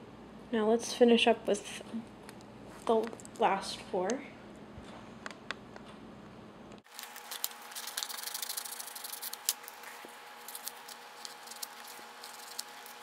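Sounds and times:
small scissors snipping paper: 0:06.9 - 0:13.0.

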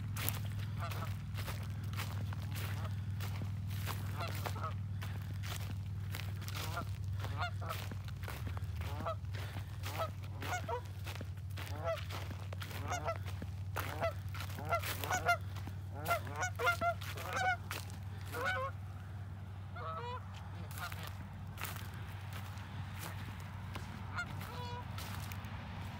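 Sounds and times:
geese honking: 0:00.0 - 0:25.9.

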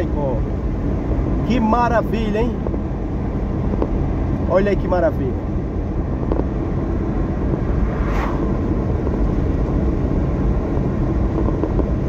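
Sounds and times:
car road and engine noise: 0:00.0 - 0:12.0
car passing by swish: 0:06.5 - 0:09.9.

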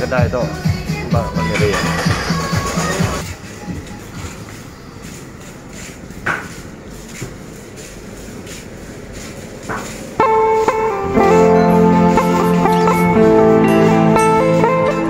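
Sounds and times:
low street noise: 0:00.0 - 0:15.0
sharp knocks: 0:09.7 - 0:10.0
music with sustained notes: 0:10.2 - 0:15.0.

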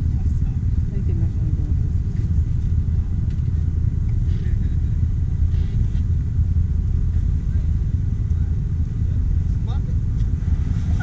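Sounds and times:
off-road vehicle low rumble: 0:00.0 - 0:11.0.

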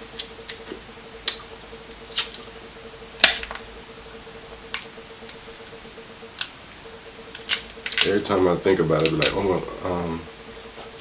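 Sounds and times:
crab shell cracking: 0:03.2 - 0:03.6, 0:07.3 - 0:08.1.

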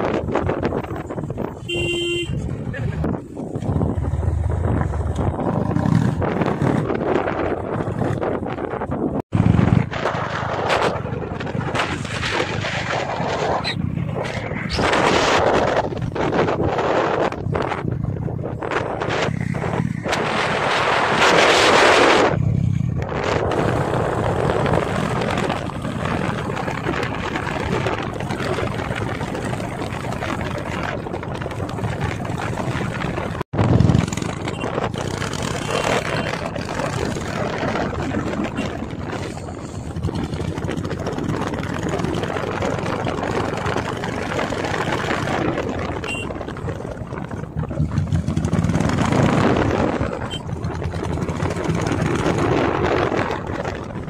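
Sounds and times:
motorcycle engine running: 0:00.0 - 0:54.0
wind rushing over microphone: 0:00.0 - 0:54.0.

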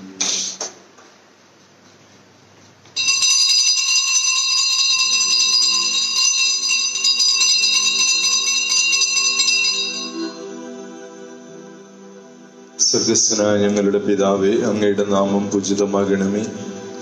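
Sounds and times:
altar bells jingling: 0:03.0 - 0:11.0
soft instrumental music: 0:08.0 - 0:17.0.

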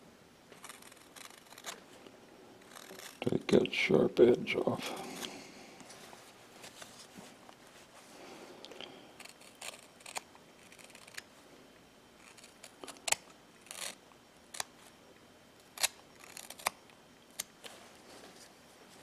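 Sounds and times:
knife whittling wood: 0:02.6 - 0:03.4.

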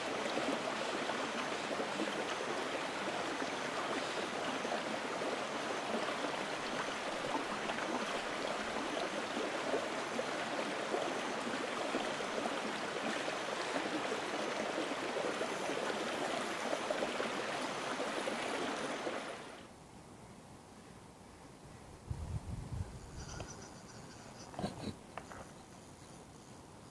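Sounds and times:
running water: 0:00.0 - 0:19.7.

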